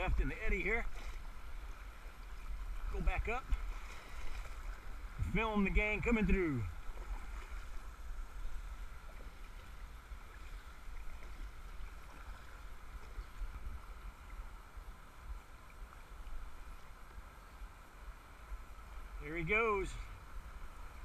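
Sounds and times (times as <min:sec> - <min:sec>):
low rumble on microphone: 0:00.0 - 0:15.5
paddle strokes splashing: 0:00.0 - 0:19.2.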